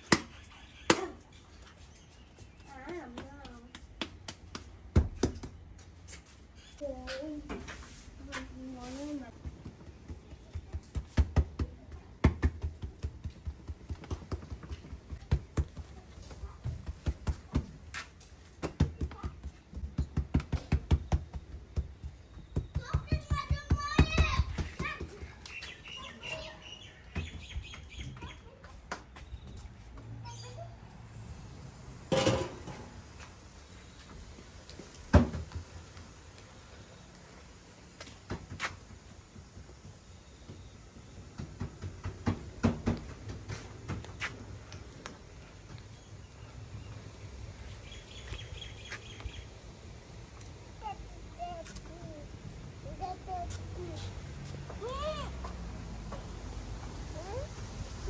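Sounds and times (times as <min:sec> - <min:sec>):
hands slapping bread dough: 0:02.3 - 0:05.7.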